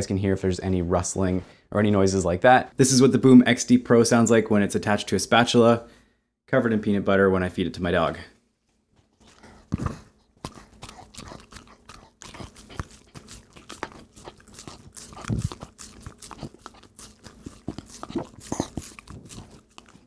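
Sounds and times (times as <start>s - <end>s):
dog licking and lip smacking: 10.2s - 20.0s.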